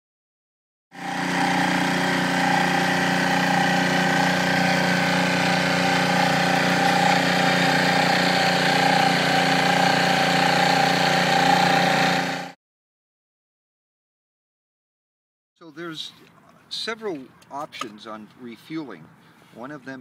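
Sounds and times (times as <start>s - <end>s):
outboard motor with high whine: 0.9s - 12.6s.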